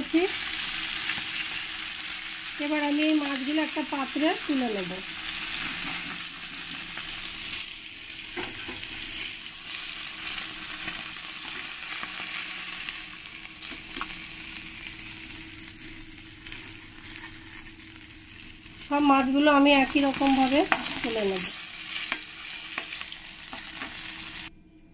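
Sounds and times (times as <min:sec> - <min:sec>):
fish sizzling in hot oil: 0:00.0 - 0:24.5.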